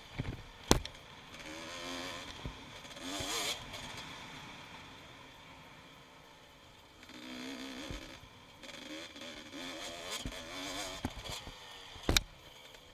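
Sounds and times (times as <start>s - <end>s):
motocross bike engine revving: 1.3s - 5.0s, 7.0s - 12.8s.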